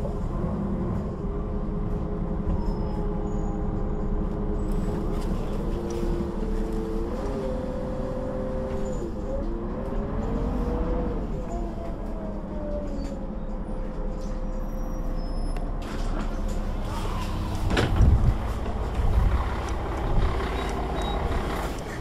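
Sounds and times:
bus engine rumbling: 0.0 - 22.0.

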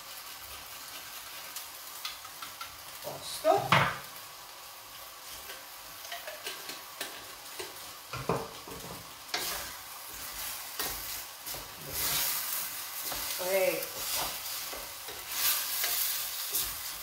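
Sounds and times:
meat sizzling in a pot: 0.0 - 17.0
wooden spoon scraping a pot: 5.2 - 17.0.

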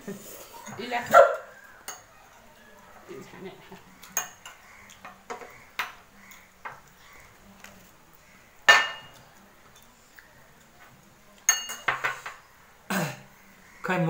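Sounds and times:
dishes and metal spoon clinking: 1.8 - 2.5, 4.0 - 7.0, 8.6 - 10.0, 10.6 - 12.5.

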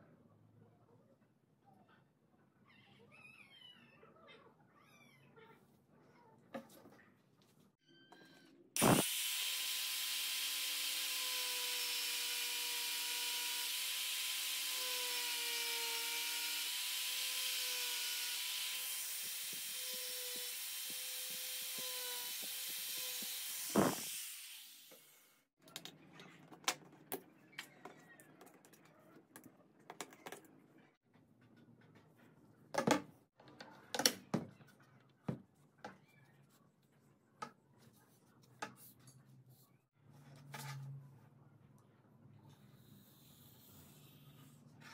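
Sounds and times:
angle grinder whining: 8.8 - 25.2.

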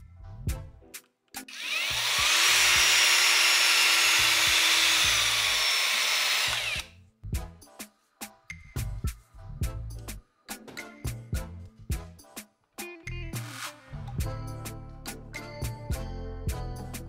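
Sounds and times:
background music: 0.0 - 17.0
paddle mixer whirring: 1.5 - 6.9.

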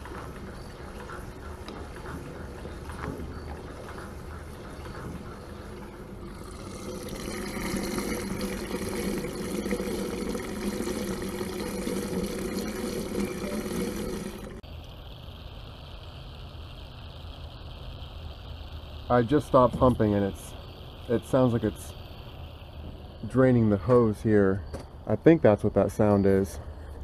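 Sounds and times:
fuel pouring into tank: 6.0 - 22.9.

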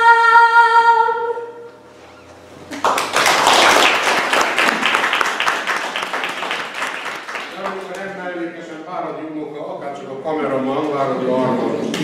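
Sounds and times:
audience applause: 2.7 - 8.4.

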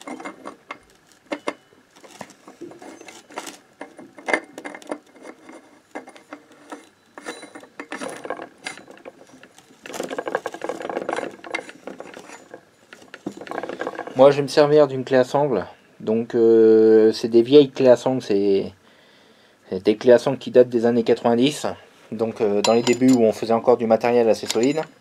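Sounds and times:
metal clicks and knocks: 0.0 - 14.2
rattling clicks: 0.0 - 14.2.

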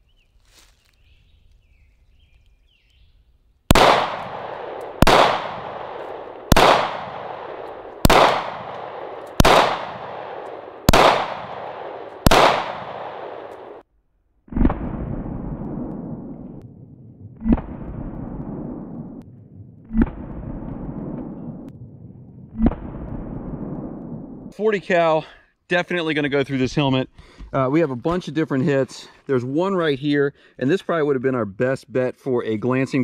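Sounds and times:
pistol shots with long echo: 3.7 - 13.8.

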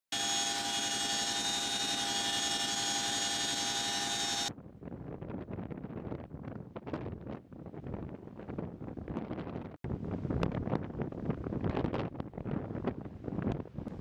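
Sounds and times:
helicopter turbine and rotor whine: 0.1 - 4.5
wind on microphone: 4.5 - 14.0.

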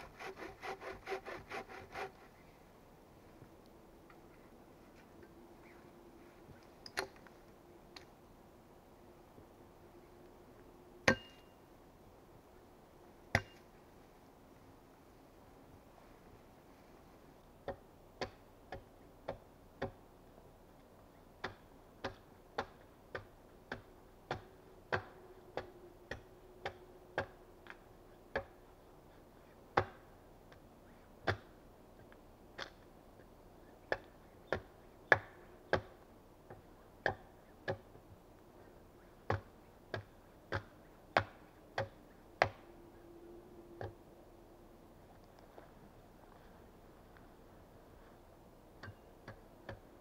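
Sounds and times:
axe chopping log: 31.2 - 31.5, 33.9 - 36.0, 39.3 - 42.6.

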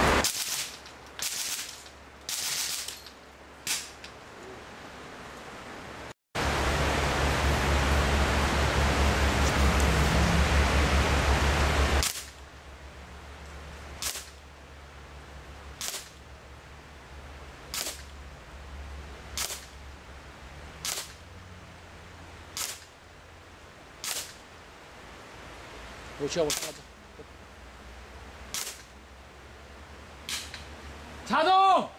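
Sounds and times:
air rifle shots: 0.0 - 3.0, 14.0 - 14.4, 15.8 - 16.2, 17.7 - 18.1, 19.4 - 19.7, 20.8 - 21.2, 22.6 - 22.9, 24.0 - 24.4, 26.4 - 26.8, 28.5 - 28.9
loud steady hiss: 0.0 - 31.9.

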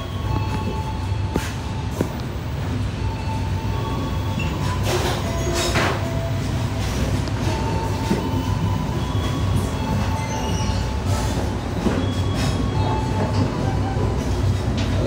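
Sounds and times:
train carriage rumbling: 0.0 - 15.0.

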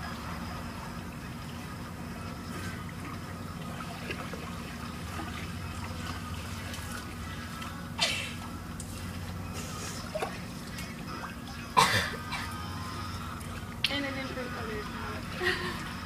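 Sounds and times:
pool water sloshing: 0.0 - 16.0
steady low hum: 0.0 - 16.0
small water splashes: 2.4 - 9.4, 10.0 - 11.8.

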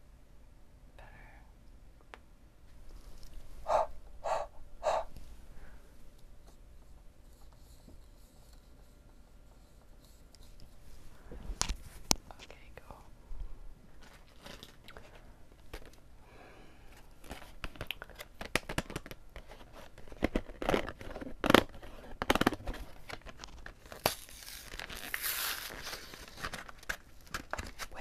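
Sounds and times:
plastic blister pack crinkling: 14.0 - 16.0, 17.2 - 28.0
plastic tearing rustle: 14.0 - 16.0, 17.2 - 28.0.

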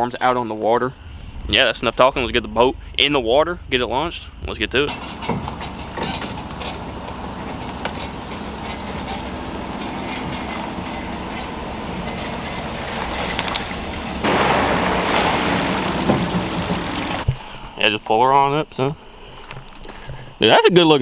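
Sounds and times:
pickup truck engine running: 4.9 - 17.3
loud rushing noise: 12.7 - 17.2.

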